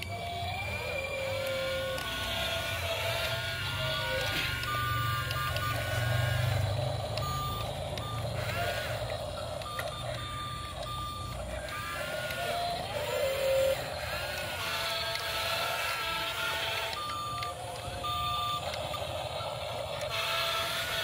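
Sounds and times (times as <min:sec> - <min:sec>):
short electronic beeps: 0:03.0 - 0:19.8.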